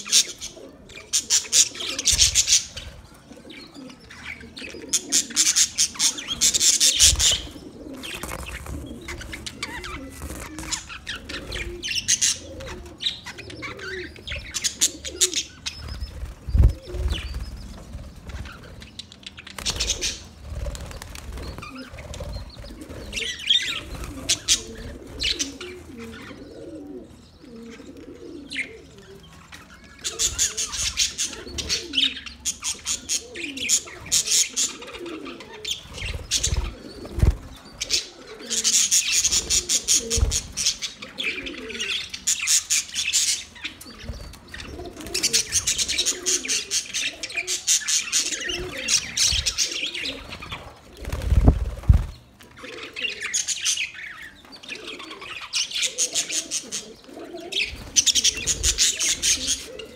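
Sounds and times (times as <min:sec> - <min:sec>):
budgerigars chirping: 0:03.7 - 0:19.0, 0:52.0 - 0:59.9.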